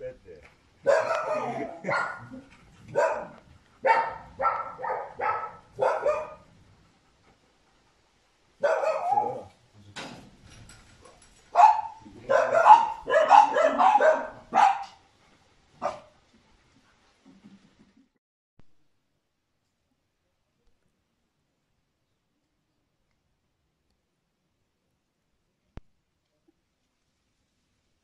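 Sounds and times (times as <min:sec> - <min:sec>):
dog barking: 0:00.8 - 0:06.5, 0:08.6 - 0:09.5, 0:11.0 - 0:15.0, 0:15.8 - 0:16.1.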